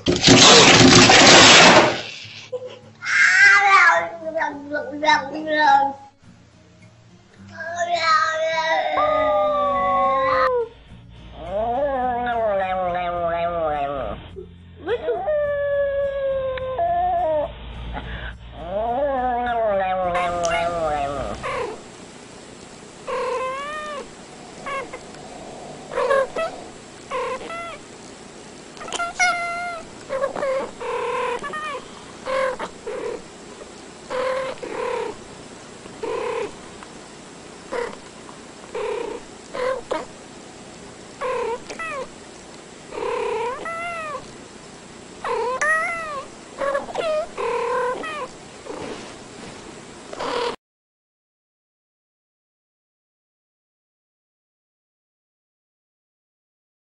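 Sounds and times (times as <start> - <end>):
cats meowing: 3.0 - 4.1, 7.8 - 10.7, 11.4 - 14.2, 15.0 - 17.5, 18.6 - 21.8, 23.1 - 27.9, 28.8 - 33.2, 34.1 - 35.2, 36.0 - 36.6, 37.7 - 38.0, 38.7 - 40.1, 41.2 - 42.2, 42.9 - 44.3, 45.2 - 48.9, 50.2 - 50.6.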